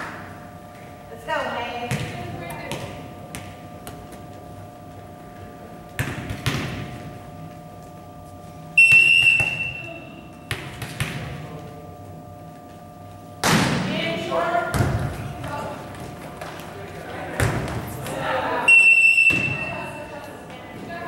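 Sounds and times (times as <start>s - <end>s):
referee's whistle blast: 8.8s - 10.0s, 18.7s - 20.0s.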